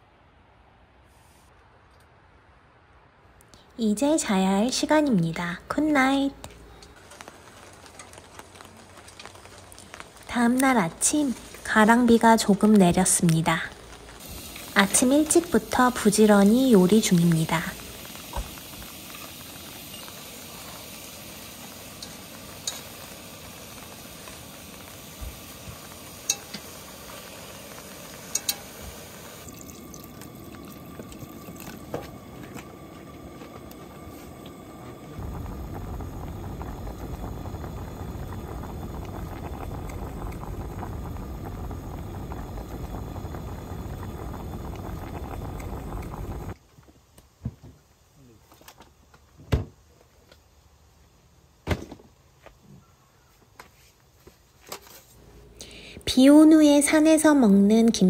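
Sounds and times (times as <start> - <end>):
stew boiling: 3.8 - 46.6, 54.8 - 58.0
meat frying hiss: 5.7 - 46.6.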